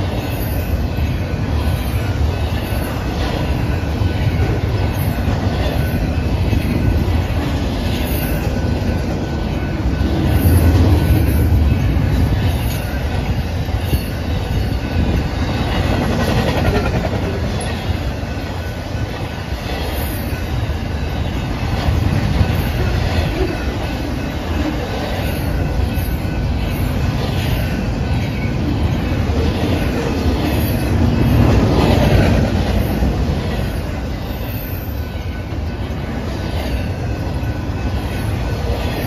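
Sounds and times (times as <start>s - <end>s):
clickety-clack over rail joints: 0.0s - 39.0s
train wheels rumbling on rails: 0.0s - 39.0s.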